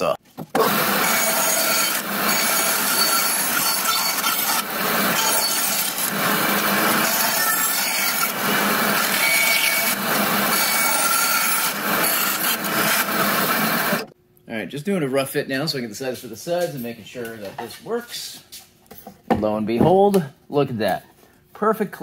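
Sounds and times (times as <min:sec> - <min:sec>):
bandsaw running: 0:00.5 - 0:14.1
bandsaw blade rasping through wood: 0:00.6 - 0:14.1.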